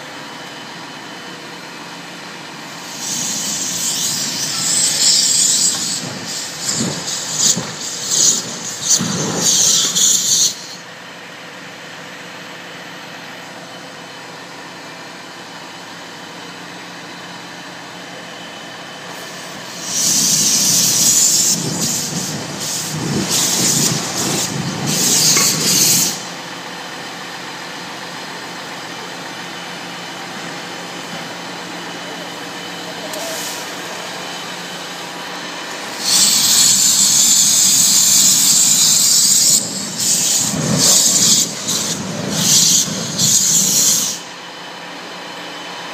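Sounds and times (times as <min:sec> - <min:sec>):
gas jet hissing: 0:02.6 - 0:10.9, 0:19.1 - 0:26.4, 0:32.0 - 0:44.4.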